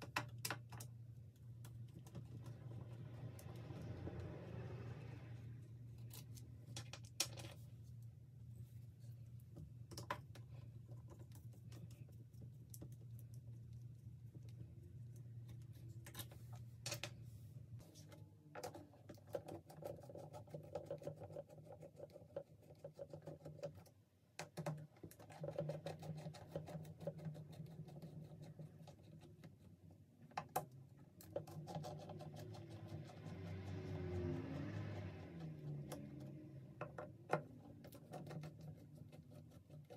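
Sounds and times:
low steady hum: 0.0 - 19.3.

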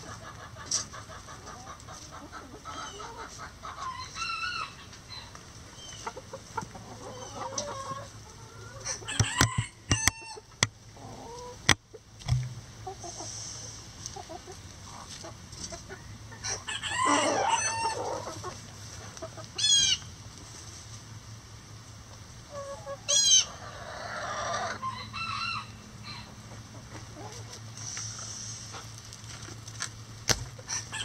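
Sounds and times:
hens clucking: 0.0 - 21.0, 22.0 - 29.0, 30.5 - 31.0
sharp taps near microphone: 11.7 - 12.6
rooster crowing: 16.7 - 18.2, 24.3 - 26.3.

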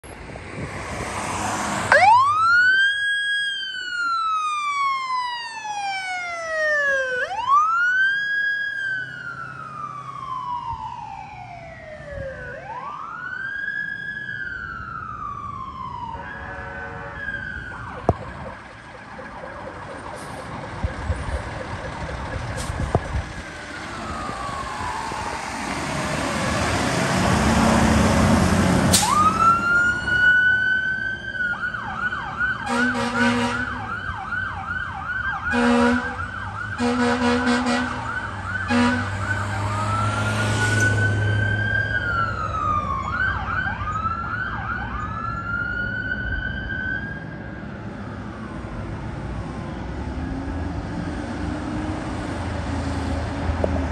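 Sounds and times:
traffic noise: 0.0 - 53.9
electronic siren wailing and yelping: 1.9 - 25.6, 29.0 - 47.2
horn blasts: 16.2 - 17.2, 32.7 - 33.8, 35.5 - 36.2, 36.8 - 38.1, 38.7 - 39.3
diesel engine running: 17.8 - 29.2.

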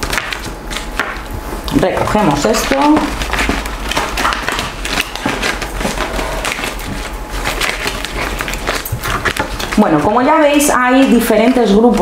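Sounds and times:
cards shuffled by hand: 2.3 - 9.8.

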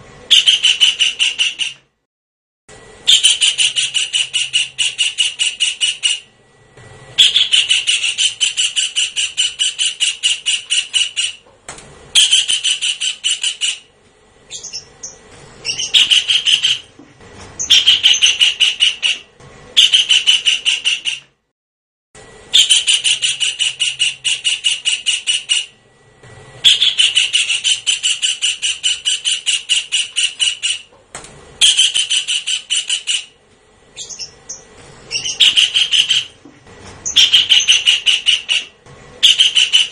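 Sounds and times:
kingfisher calling: 3.1 - 6.3, 7.2 - 11.4, 12.2 - 13.9, 14.5 - 16.9, 17.6 - 19.2, 26.6 - 30.9, 31.6 - 33.3, 34.0 - 36.4, 37.0 - 39.9.

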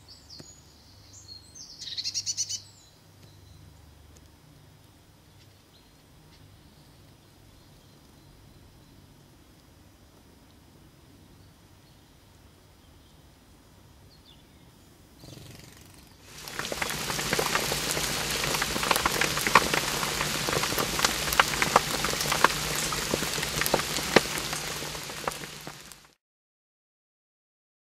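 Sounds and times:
rain falling on pond water: 16.2 - 26.2.

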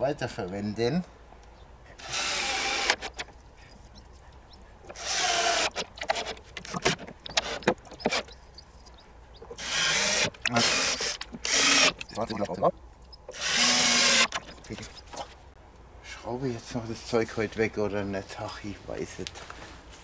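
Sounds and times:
cordless drill running: 2.0 - 3.1, 5.0 - 5.8, 9.6 - 12.0, 13.3 - 14.3.

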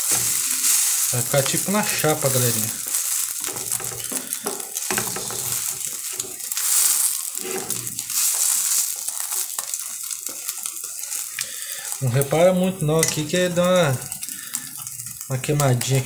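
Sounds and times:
spatula scraping pan: 0.0 - 11.3
sandwich sizzling in frying pan: 0.0 - 16.0.

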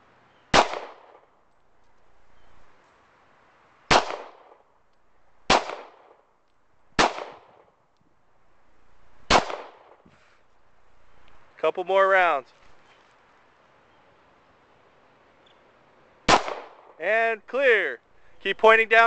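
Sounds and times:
pistol shots with echo: 0.5 - 1.3, 3.9 - 4.6, 5.5 - 6.2, 7.0 - 7.6, 9.3 - 10.0, 16.3 - 17.0.

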